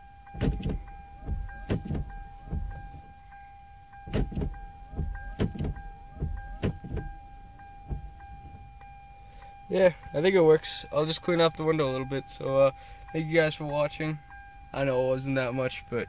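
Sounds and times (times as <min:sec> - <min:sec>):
steady high electronic tone: 0:00.0 - 0:16.0
windshield wipers thunking: 0:00.3 - 0:03.4, 0:04.0 - 0:10.1.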